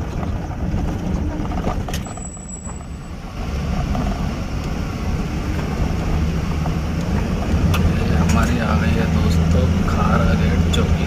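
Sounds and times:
tyres rumbling over gravel: 0:00.0 - 0:04.4
vehicle engine running: 0:00.0 - 0:11.0.

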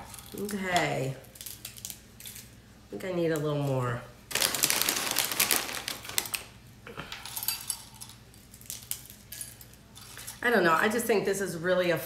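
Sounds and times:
pretzels crackling and snapping: 0:00.0 - 0:02.6, 0:03.3 - 0:10.3
pretzels rattling: 0:04.3 - 0:06.5, 0:07.2 - 0:10.4
plastic bag crinkling: 0:04.3 - 0:06.6.

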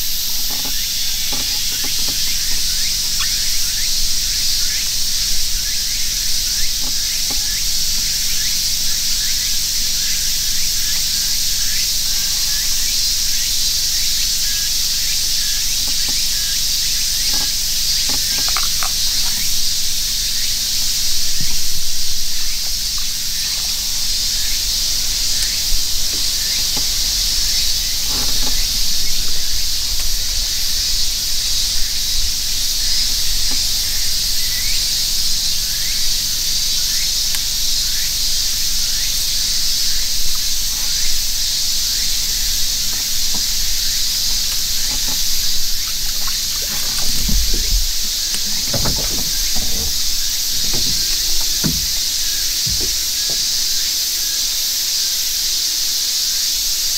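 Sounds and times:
cicadas droning: 0:00.0 - 0:56.9
low thumps: 0:42.4 - 0:53.8.

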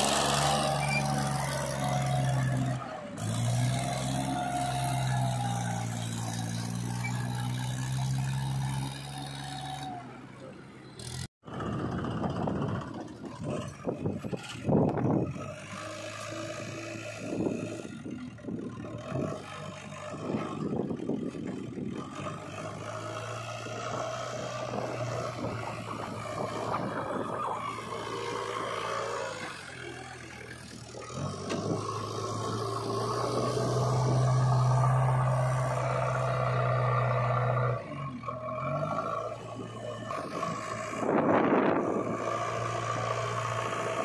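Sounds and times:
diesel engine under load: 0:00.0 - 0:44.0
earth scraping and clatter: 0:11.5 - 0:36.2.

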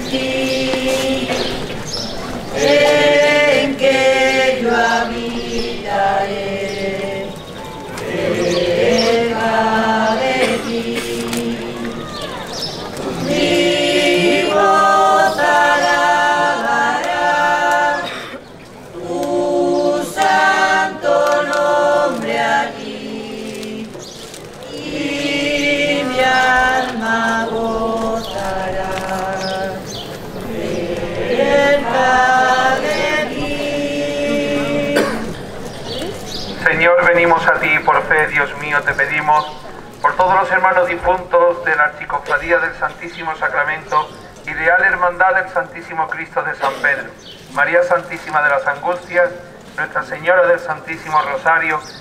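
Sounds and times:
group singing a slow hymn: 0:00.0 - 0:41.5.

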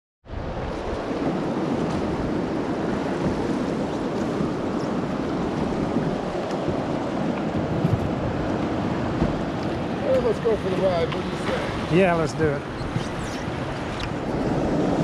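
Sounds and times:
river water splashing: 0:00.3 - 0:15.0
wind on microphone: 0:00.3 - 0:15.0.

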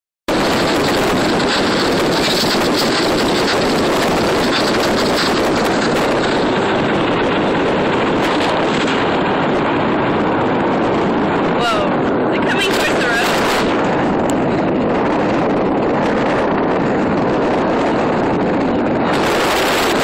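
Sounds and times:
car road noise: 0:00.3 - 0:20.0
wind on microphone: 0:00.3 - 0:20.0.

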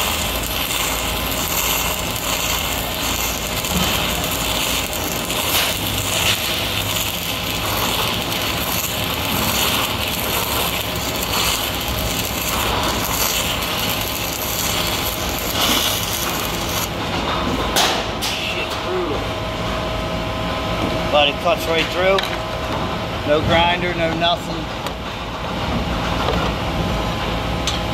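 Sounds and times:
welding arc crackling: 0:00.0 - 0:19.2.

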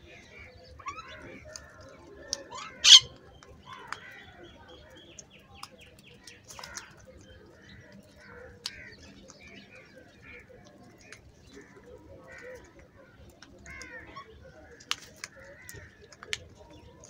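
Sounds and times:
crows and mynas calling: 0:00.2 - 0:04.4, 0:11.6 - 0:12.7, 0:13.6 - 0:16.2.

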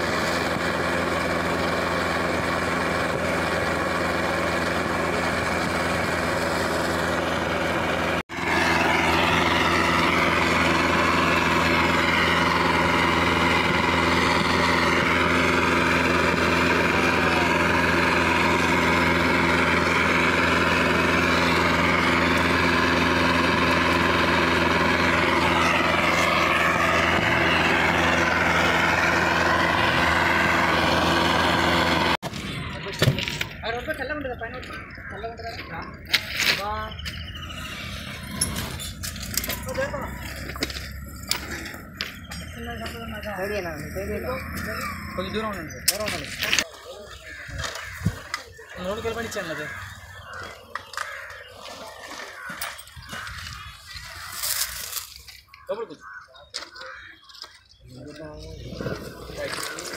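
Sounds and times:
burner hissing roar: 0:00.0 - 0:32.2
engine humming: 0:00.0 - 0:59.9.

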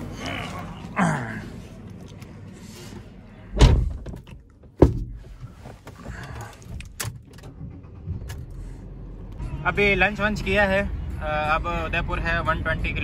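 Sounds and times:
car door shutting: 0:03.5 - 0:08.6.

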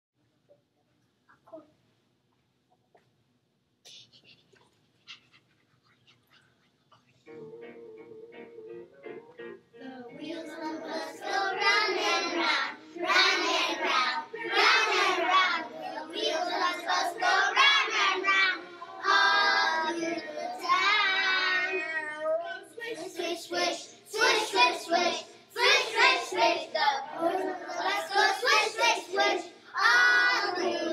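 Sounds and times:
children singing: 0:09.8 - 0:30.9.

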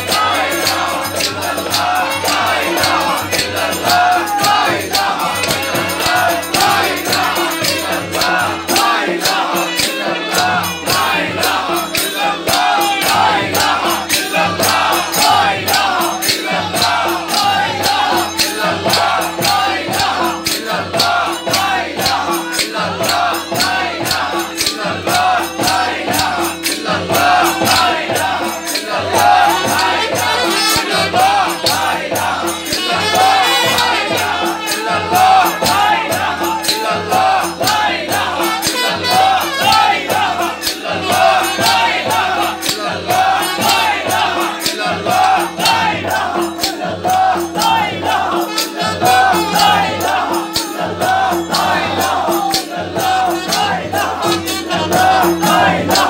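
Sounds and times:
hand clapping: 0:00.0 - 0:31.9
lead singer: 0:00.0 - 0:56.0
men chanting together: 0:00.0 - 0:56.0
percussion beat: 0:00.0 - 0:56.0.

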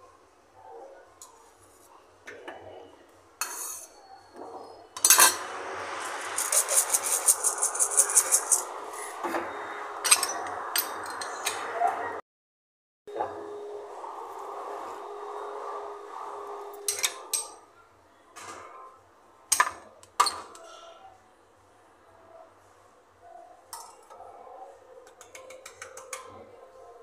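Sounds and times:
kitchen utensils clinking: 0:03.4 - 0:08.7, 0:10.0 - 0:11.6
plastic shaker rattling: 0:06.0 - 0:08.7.

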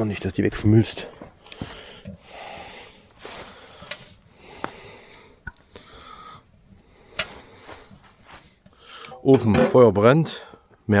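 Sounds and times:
breathy puffs of air: 0:01.4 - 0:09.2.

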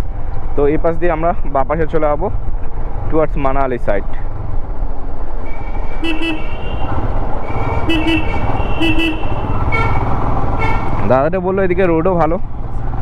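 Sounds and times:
wind rumbling: 0:04.3 - 0:11.1
motorcycle engine: 0:04.5 - 0:13.0
vehicle horn tooting: 0:06.0 - 0:07.0, 0:07.6 - 0:10.0, 0:10.6 - 0:11.0.

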